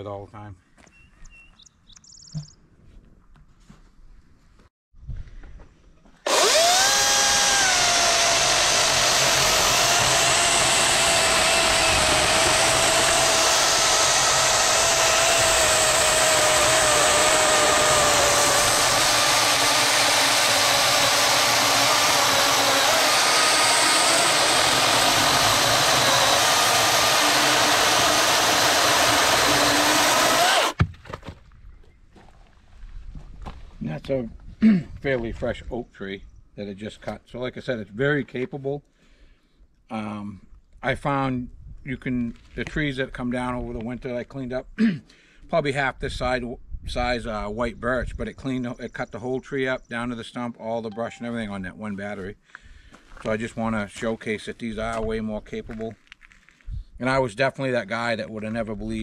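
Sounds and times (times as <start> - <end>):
chainsaw cutting log: 6.2 - 31.2.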